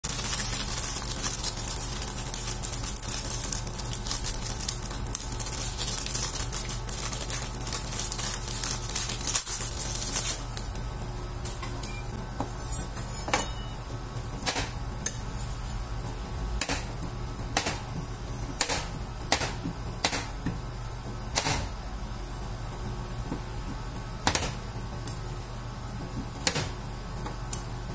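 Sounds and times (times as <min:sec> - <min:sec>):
plastic wrapper crinkling and tearing: 0:00.0 - 0:10.8
steady low hum: 0:00.0 - 0:27.9.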